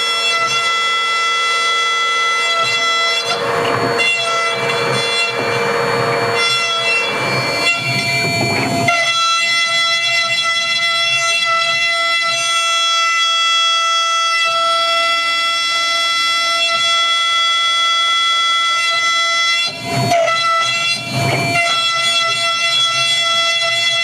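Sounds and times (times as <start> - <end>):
spindle whining: 0.0 - 24.0
scratchy metal cutting noise: 2.4 - 12.4.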